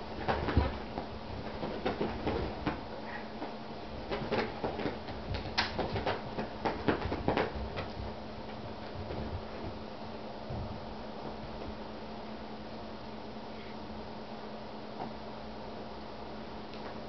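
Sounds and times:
person's footfalls: 0:00.0 - 0:09.9
kittens pouncing on carpet: 0:00.0 - 0:11.9.

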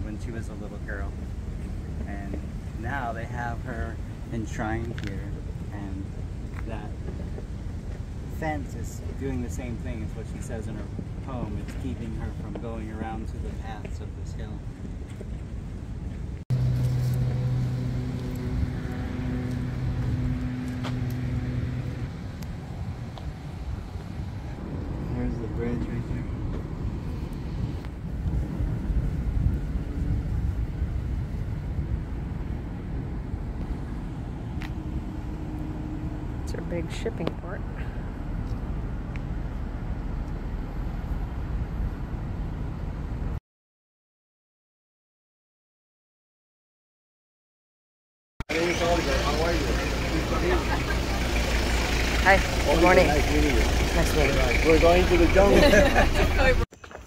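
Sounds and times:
low engine hum: 0:00.0 - 0:43.4, 0:48.5 - 0:56.7
low rumbling noise: 0:00.0 - 0:43.4.

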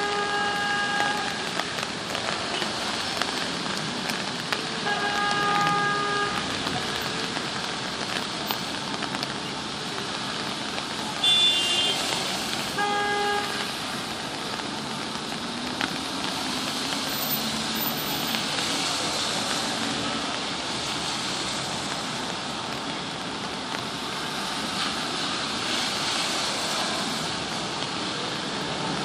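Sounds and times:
car horns honking: 0:00.0 - 0:01.4, 0:04.8 - 0:06.5, 0:11.2 - 0:12.0, 0:12.8 - 0:13.7
rain hiss: 0:00.0 - 0:29.0
traffic on wet pavement: 0:00.0 - 0:29.0.

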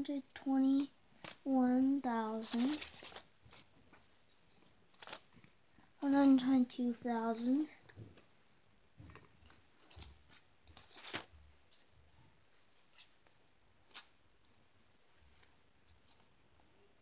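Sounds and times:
paper money rustling: 0:00.8 - 0:03.7, 0:04.6 - 0:05.6, 0:09.4 - 0:16.3.

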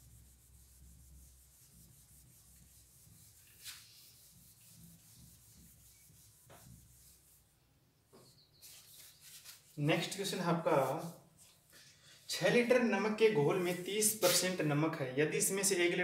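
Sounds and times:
eraser rubbing on whiteboard: 0:00.0 - 0:07.5, 0:08.6 - 0:09.8, 0:13.6 - 0:14.6.

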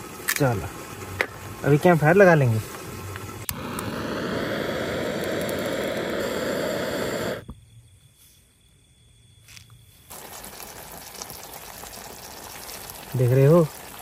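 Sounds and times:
gas torch roaring: 0:00.0 - 0:07.5.

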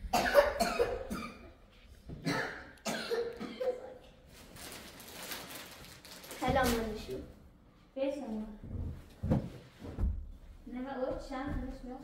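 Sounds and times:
person coughing: 0:00.1 - 0:01.6, 0:02.2 - 0:04.0.

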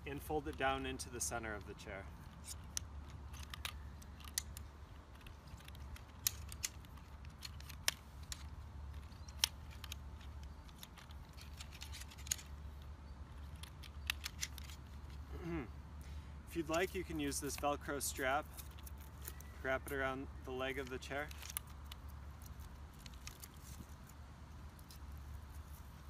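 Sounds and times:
low steady hum: 0:00.0 - 0:26.0.

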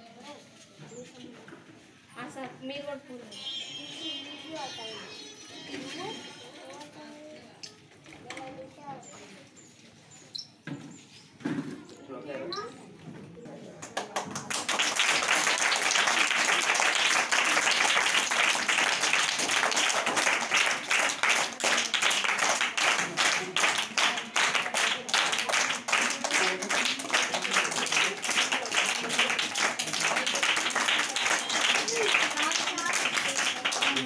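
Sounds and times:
children clapping: 0:13.8 - 0:34.0
faint voices: 0:15.5 - 0:34.0.

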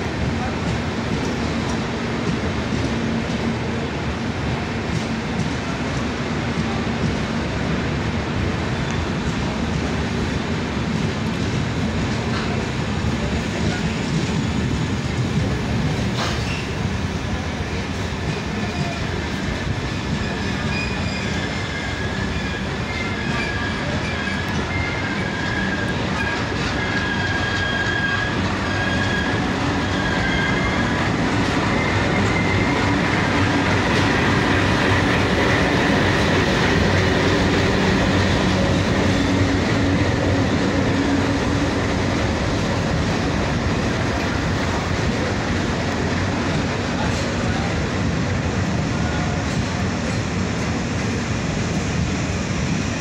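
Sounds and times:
train wheels rumbling over rails: 0:00.0 - 0:53.0
high-pitched wheel squeal: 0:20.3 - 0:33.0.

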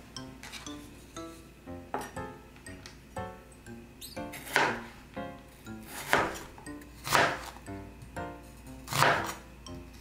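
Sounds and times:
soft background music: 0:00.0 - 0:10.0
knife slicing onion on board: 0:04.3 - 0:04.9, 0:05.8 - 0:07.6, 0:08.9 - 0:09.4.

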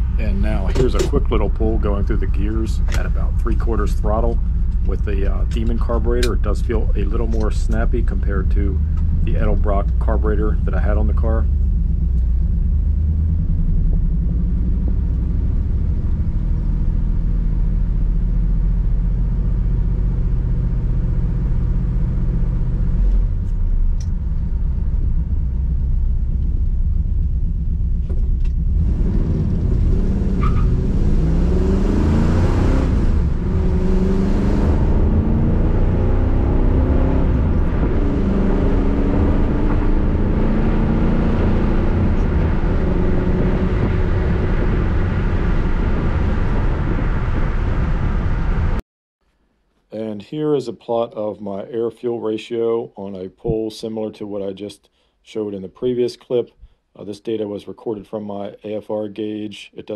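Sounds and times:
car engine revving through gears: 0:28.5 - 0:47.8.

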